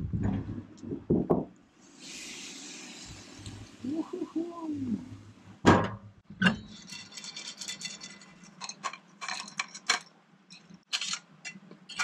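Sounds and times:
cookware clinking: 0:06.4 - 0:12.0.

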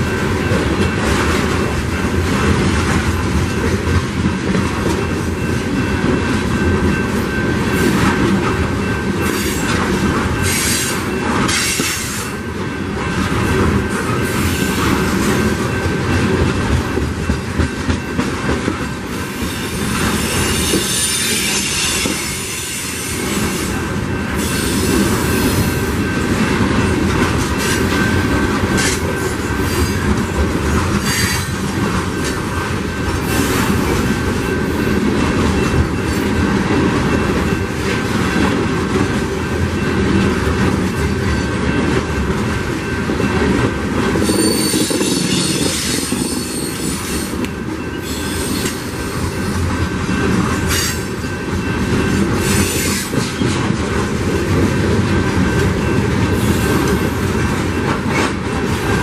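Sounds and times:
train wheels rumbling on rails: 0:00.0 - 0:59.0
high-pitched wheel squeal: 0:44.2 - 0:47.3.

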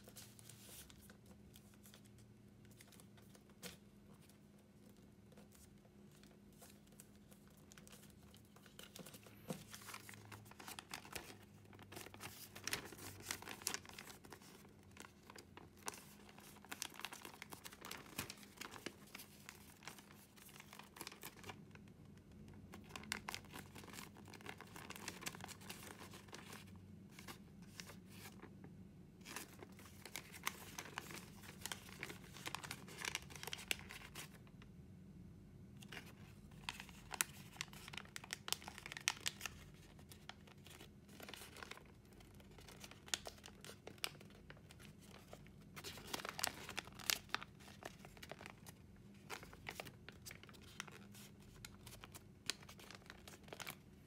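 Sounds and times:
paper crinkling and rustling: 0:00.0 - 0:34.5, 0:35.8 - 0:54.0.

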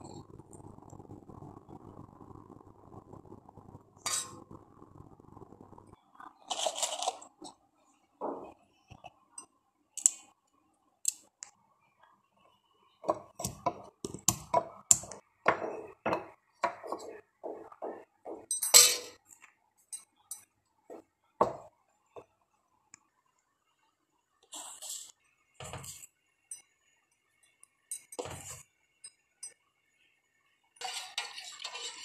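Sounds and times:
utensils clinking: 0:18.5 - 0:19.2.

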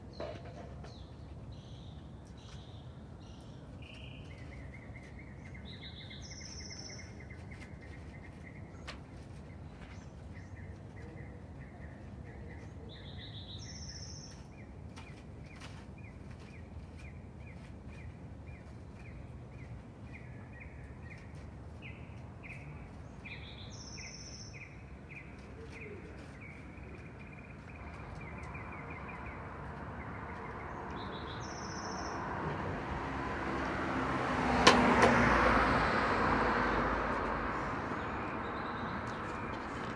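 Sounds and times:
small birds chirping: 0:00.0 - 0:33.2, 0:36.5 - 0:39.9
vehicle passing: 0:27.0 - 0:39.9.

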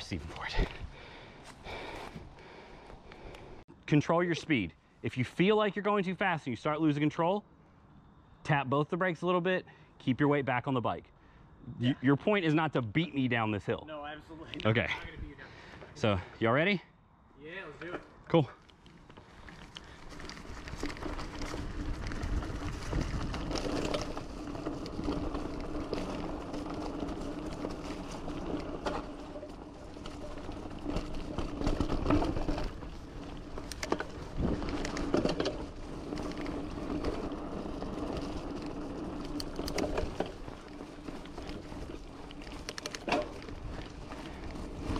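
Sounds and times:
bike tyres rolling over dirt: 0:18.5 - 0:44.9
bike knocking and rattling: 0:18.8 - 0:44.9
wind rumble on microphone: 0:19.9 - 0:42.5.

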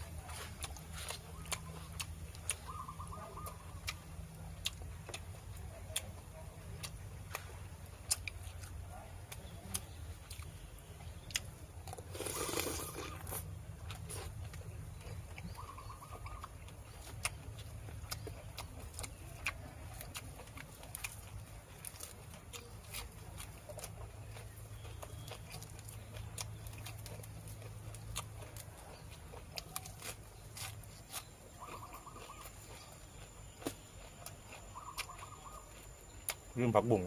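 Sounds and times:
low steady rumble: 0:00.0 - 0:36.6
person chewing food: 0:00.0 - 0:37.0.

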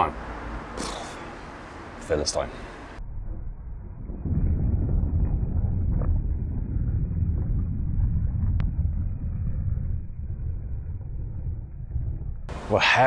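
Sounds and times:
car exhaust rumbling: 0:02.8 - 0:13.0.

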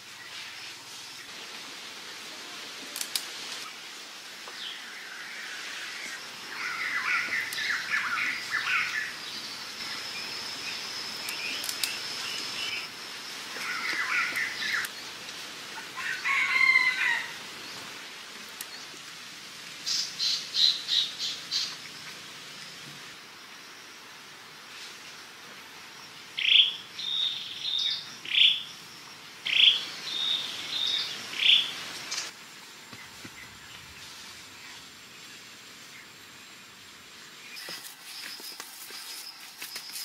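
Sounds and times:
scratchy bird calls: 0:13.5 - 0:15.0, 0:37.6 - 0:40.0.

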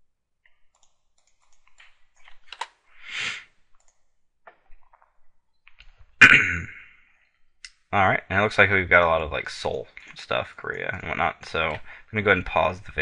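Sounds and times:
computer mouse clicks: 0:00.5 - 0:02.8, 0:03.8 - 0:05.1.

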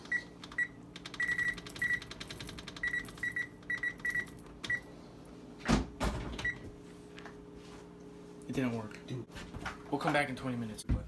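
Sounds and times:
keypad beeps: 0:00.1 - 0:04.9.

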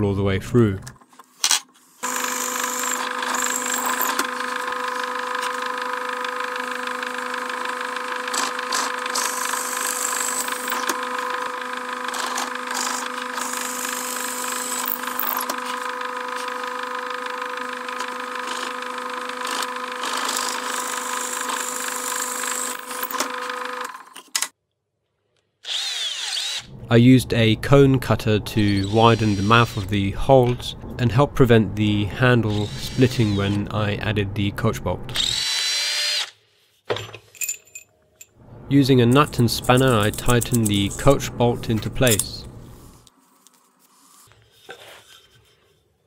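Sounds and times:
drill boring through wood: 0:01.9 - 0:23.9, 0:25.6 - 0:26.8, 0:28.6 - 0:29.9, 0:32.5 - 0:33.6, 0:35.2 - 0:36.4.

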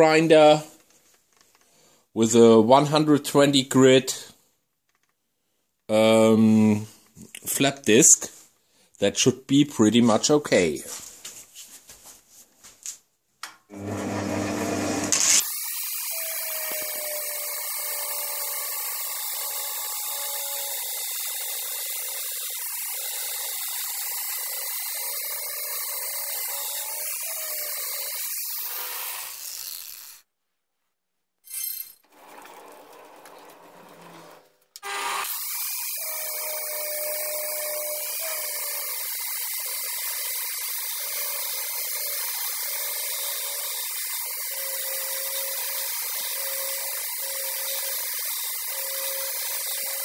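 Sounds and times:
angle grinder grinding metal: 0:13.7 - 0:30.2, 0:31.5 - 0:50.0.

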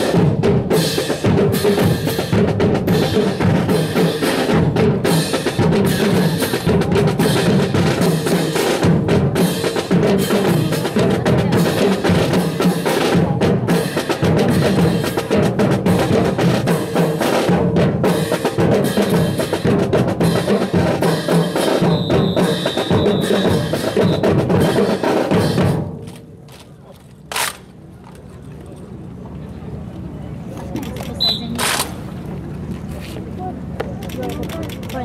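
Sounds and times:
drum-led marching music: 0:00.0 - 0:28.2
sharp crack: 0:26.0 - 0:28.3, 0:31.6 - 0:32.2.

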